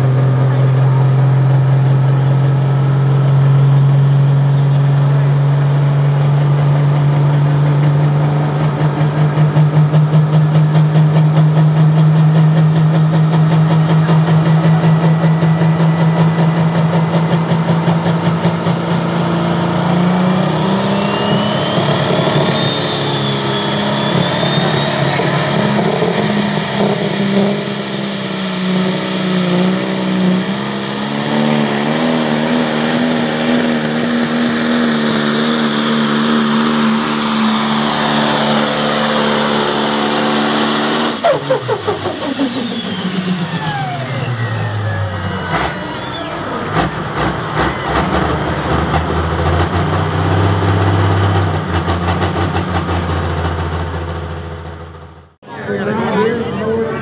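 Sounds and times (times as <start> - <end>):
diesel engine running hard: 0.0 - 57.0
turbocharger whistle rising: 8.6 - 53.7.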